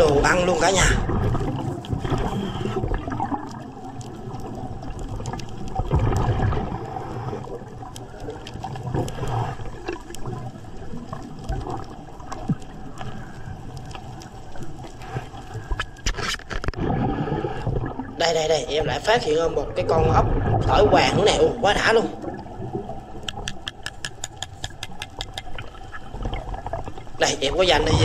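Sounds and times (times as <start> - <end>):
underwater breathing bubbles: 0.8 - 18.2.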